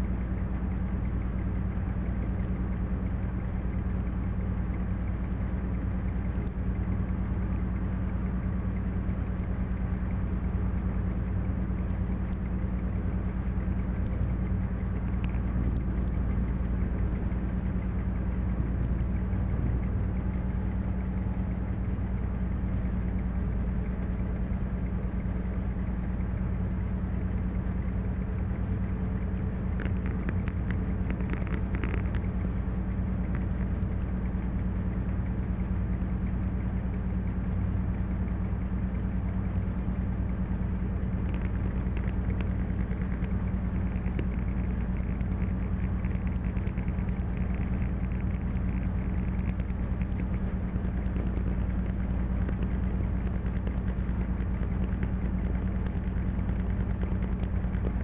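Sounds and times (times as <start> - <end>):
diesel locomotive engine running: 0.0 - 58.0
sharp clicks: 29.7 - 32.4, 40.7 - 58.0.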